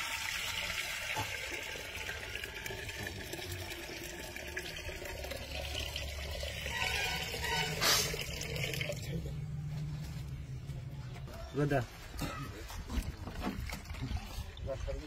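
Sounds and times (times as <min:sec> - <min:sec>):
liquid pouring and splashing into pot: 0:00.0 - 0:09.3.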